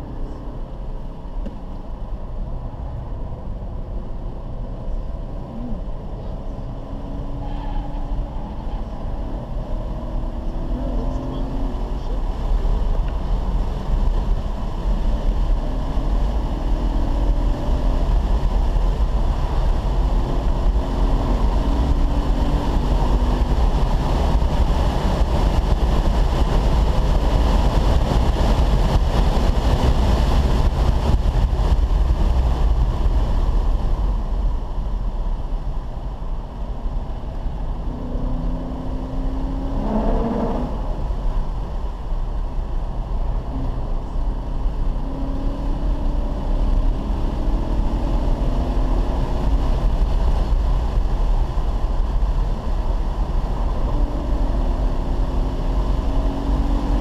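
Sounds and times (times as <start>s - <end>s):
tyre and road rumble: 0.0s - 57.0s
car engine revving: 4.9s - 34.4s, 36.9s - 41.9s, 42.5s - 57.0s.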